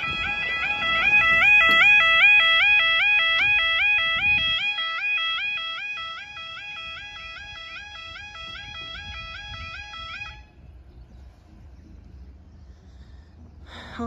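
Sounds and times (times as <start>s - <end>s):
two-tone crossing alarm warble: 0.0s - 10.8s
low rumble: 7.1s - 14.0s.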